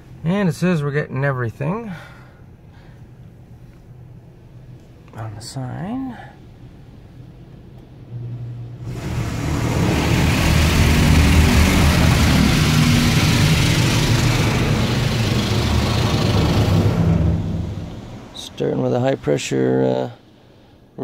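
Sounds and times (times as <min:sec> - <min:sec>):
low machine hum: 0:01.4 - 0:21.0
high-pressure water spray: 0:08.9 - 0:18.0.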